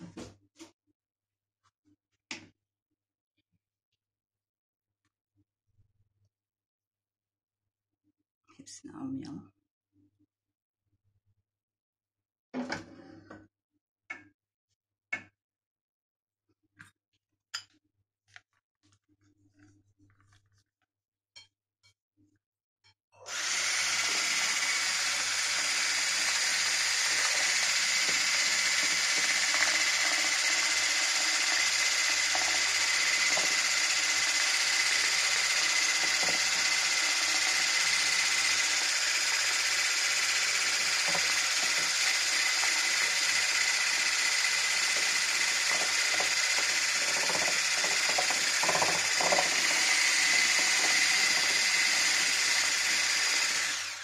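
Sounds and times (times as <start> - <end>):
electric mixer whining: 23.2 - 54.0
whisk clattering against bowl: 47.0 - 49.6.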